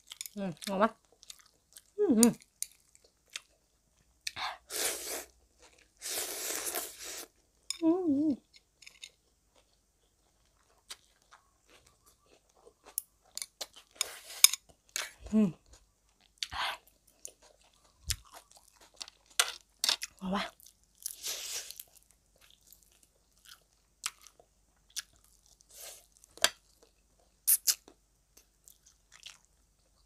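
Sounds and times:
chewing: 0:00.0 - 0:04.4, 0:08.5 - 0:30.0
noodles being slurped: 0:04.7 - 0:07.4.

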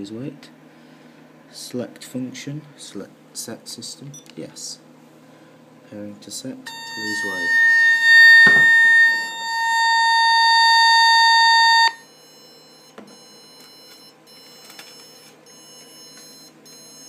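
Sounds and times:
alarm tone from loudspeaker: 0:06.7 - 0:12.0.

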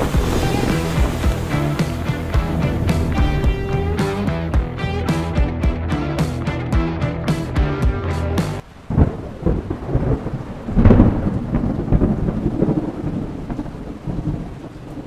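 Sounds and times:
steady rain: 0:00.0 - 0:04.4, 0:08.6 - 0:15.0
thunder rumbling: 0:00.0 - 0:04.4, 0:08.6 - 0:15.0.

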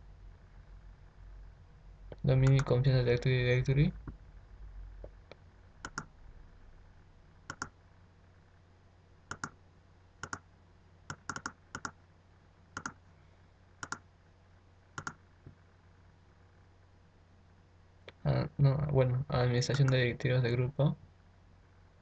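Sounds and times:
computer mouse clicking: 0:02.1 - 0:02.7, 0:05.8 - 0:06.1, 0:07.5 - 0:07.8, 0:09.3 - 0:09.6, 0:10.2 - 0:10.4, 0:11.1 - 0:12.0, 0:12.8 - 0:13.0, 0:13.8 - 0:14.0, 0:15.0 - 0:15.2.

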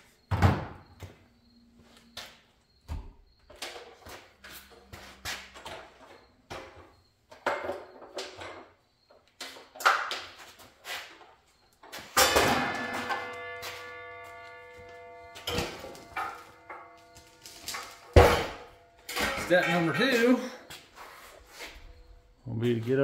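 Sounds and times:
metal clatter: 0:12.1 - 0:20.5
metal parts knocking and clinking: 0:12.2 - 0:20.4.

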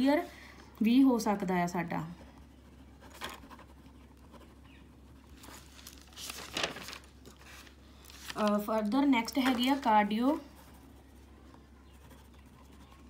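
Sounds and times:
pen scratching on paper: 0:02.4 - 0:05.6, 0:10.5 - 0:13.0
paper rustle: 0:05.2 - 0:10.4.

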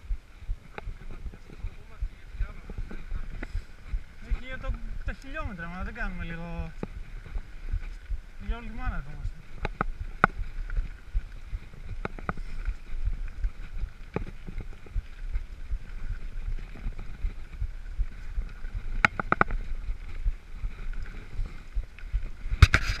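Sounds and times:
bike clicking and rattling: 0:09.6 - 0:23.0.

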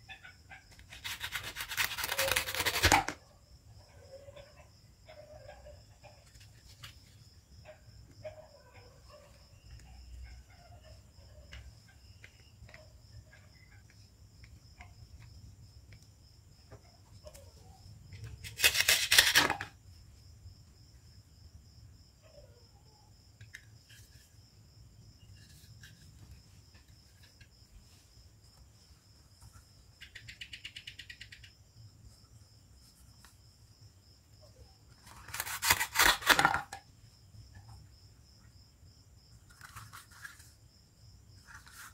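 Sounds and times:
plastic toys clicking and rubbing: 0:00.8 - 0:03.2, 0:18.2 - 0:19.7, 0:30.0 - 0:31.5
velcro ripping: 0:00.9 - 0:03.2, 0:18.4 - 0:19.7, 0:35.1 - 0:36.7.

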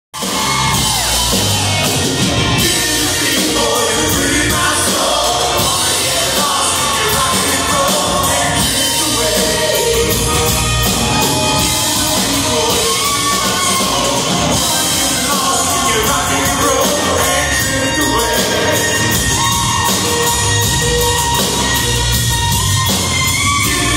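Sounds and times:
bass guitar: 0:00.1 - 0:23.9
drums: 0:00.1 - 0:23.9
electric guitar lead lines: 0:00.2 - 0:23.9.

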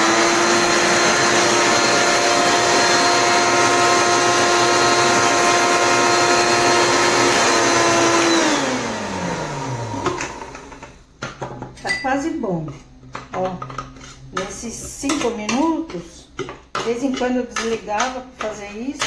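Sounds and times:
blender motor running: 0:00.0 - 0:11.0.

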